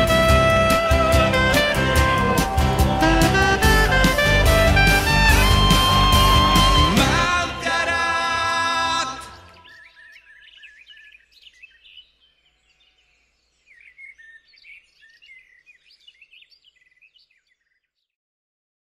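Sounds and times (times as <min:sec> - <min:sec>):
small birds chirping: 0:09.2 - 0:18.1.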